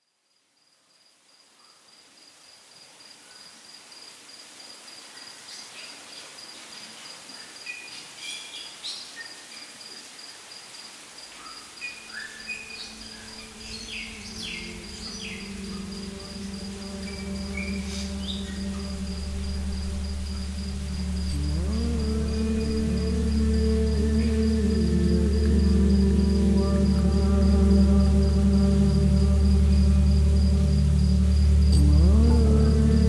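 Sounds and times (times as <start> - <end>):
insect trilling: 11.8 - 33.0
low musical drone: 12.4 - 33.0.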